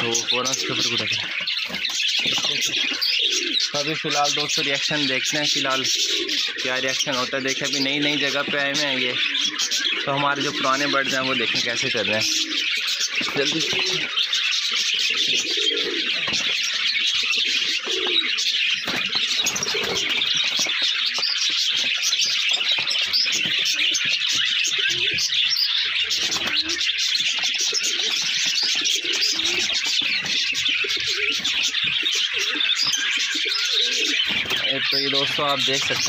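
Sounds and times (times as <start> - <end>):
high chirping of birds: 0.0 - 36.0
pigeons cooing: 0.0 - 36.0.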